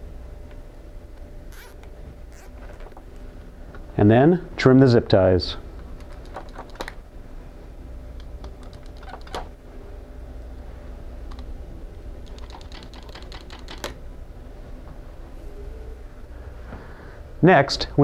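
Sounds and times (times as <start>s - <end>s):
knife snipping zip ties: 1.5s - 2.6s.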